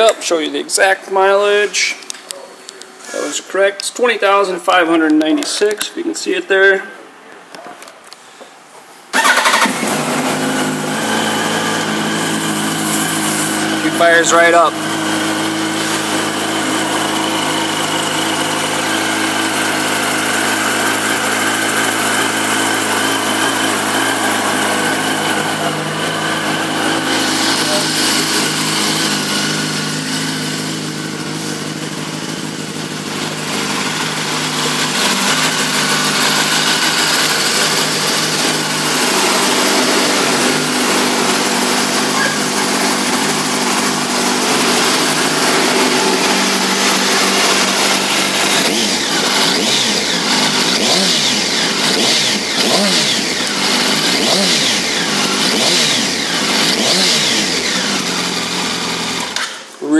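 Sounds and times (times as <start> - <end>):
motorcycle engine idling: 14.7 - 59.4.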